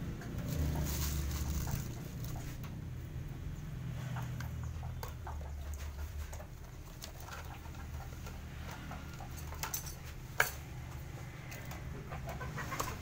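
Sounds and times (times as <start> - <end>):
plastic bag rustling: 0.4 - 2.6.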